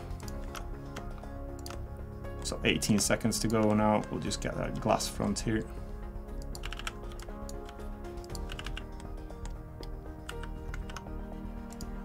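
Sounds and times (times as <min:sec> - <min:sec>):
background music: 0:00.0 - 0:12.0
computer keyboard key clicks: 0:06.4 - 0:09.6, 0:10.2 - 0:11.1.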